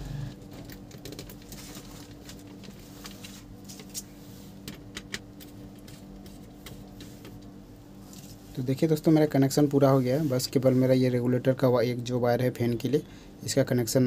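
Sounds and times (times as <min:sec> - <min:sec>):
hands handling electrical wires: 0:00.5 - 0:07.5.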